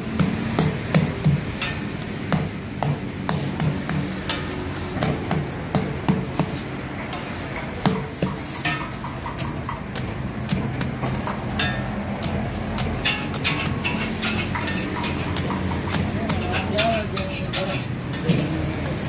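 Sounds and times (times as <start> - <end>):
metal spatula scraping griddle: 6.3 - 19.0.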